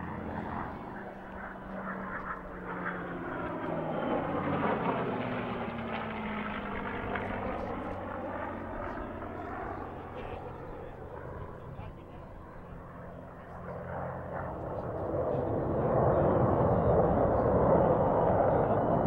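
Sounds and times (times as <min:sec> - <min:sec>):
jet and propeller aircraft flying past: 0:00.0 - 0:19.0.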